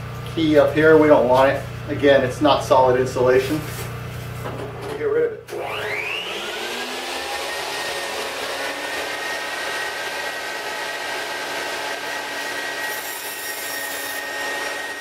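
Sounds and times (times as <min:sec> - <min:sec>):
table saw cutting foam: 0:05.5 - 0:15.0.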